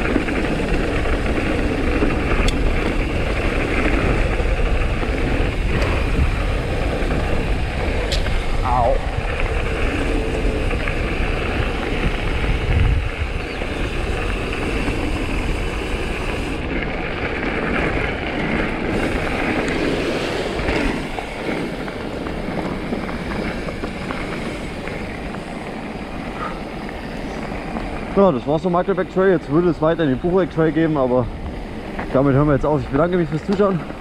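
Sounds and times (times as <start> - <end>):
bike rattling: 0.0 - 34.0
bike tyre noise: 0.0 - 34.0
wind rushing over microphone: 0.0 - 34.0.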